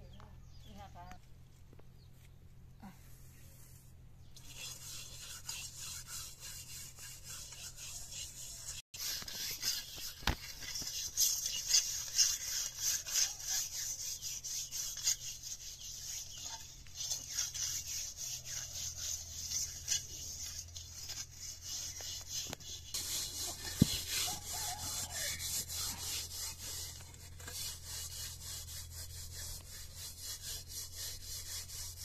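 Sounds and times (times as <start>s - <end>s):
scrubbing metal pan with soil: 9.0s - 28.4s.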